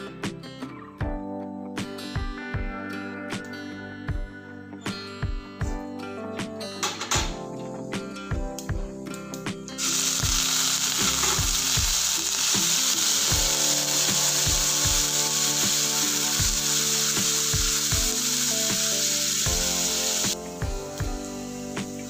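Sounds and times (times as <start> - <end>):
onions sizzling in hot oil: 9.8 - 22.0.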